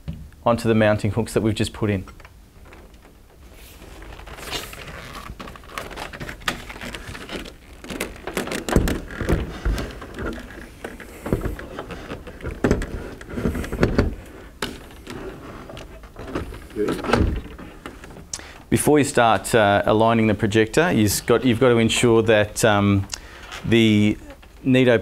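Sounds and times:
heavy thumps: 2.6 - 18.7.

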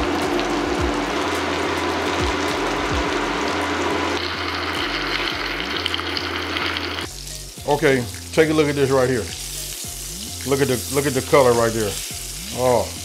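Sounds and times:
background music: 0.0 - 13.0
chicken sizzling in a skillet: 0.0 - 13.0.

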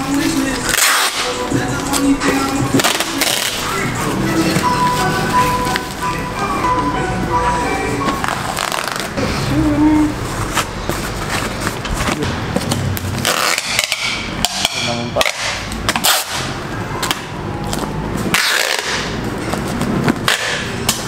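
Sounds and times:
packing tape ripping: 0.6 - 1.4, 2.8 - 3.7, 8.3 - 9.2, 13.2 - 14.0, 15.2 - 16.5, 18.3 - 19.2.

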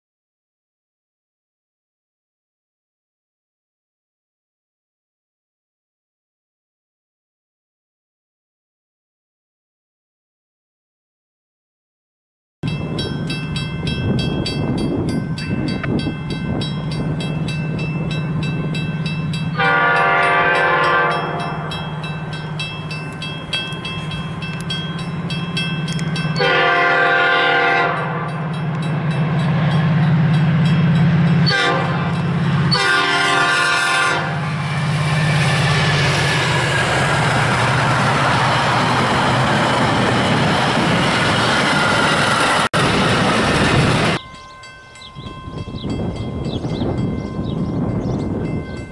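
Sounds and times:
crossing bell ringing: 12.6 - 48.9
train wheels rumbling on rails: 12.6 - 48.9
train horn: 19.5 - 21.9, 25.9 - 28.6, 31.4 - 34.9.

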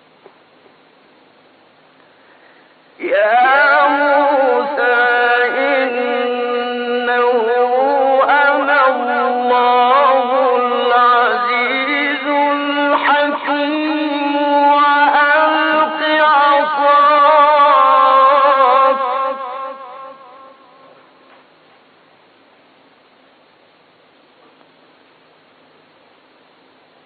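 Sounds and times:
faint hiss: 0.0 - 27.0
man chanting melodically: 3.0 - 21.2.

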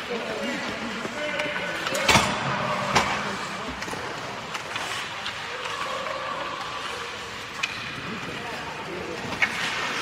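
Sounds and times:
arena hubbub: 0.0 - 10.0.

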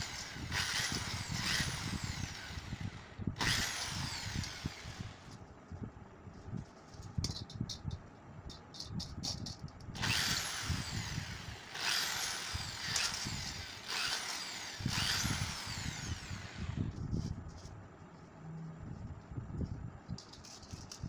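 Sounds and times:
electric drill cutting plastic: 0.0 - 5.3, 10.0 - 16.9.

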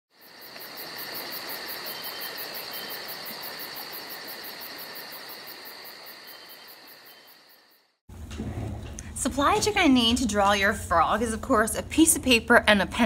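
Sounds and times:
crickets chirping: 0.1 - 8.0.

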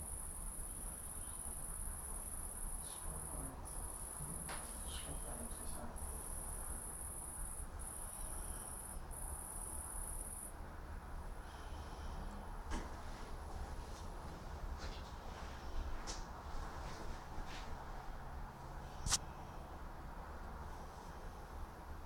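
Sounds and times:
insect buzzing: 0.0 - 10.5.

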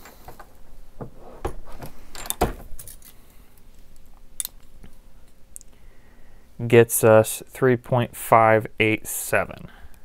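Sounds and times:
metallic clicks and clinks: 2.1 - 3.2.

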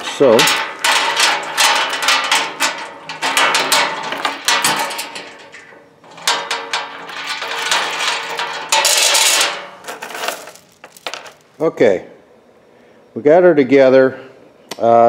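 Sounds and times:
chain links clinking on steel panel: 0.0 - 11.5.

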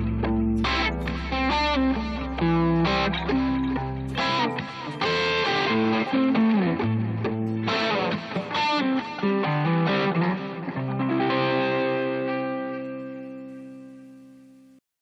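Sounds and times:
band music: 0.0 - 6.5
electric guitar chords: 0.0 - 14.8.

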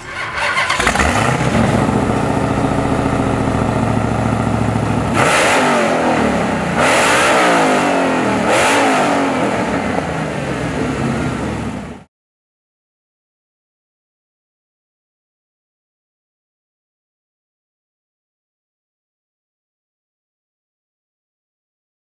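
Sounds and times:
car engine idling and revving: 0.0 - 12.1.

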